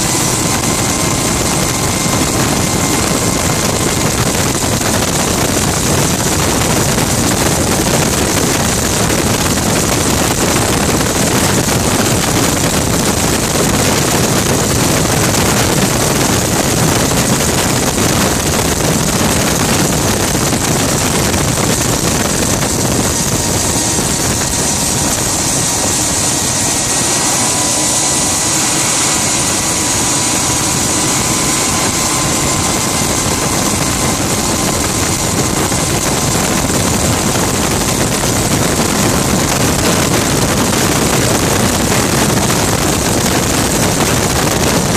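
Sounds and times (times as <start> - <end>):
gas turbine engine whine: 0.0 - 44.9
thin rising tone: 21.7 - 37.3.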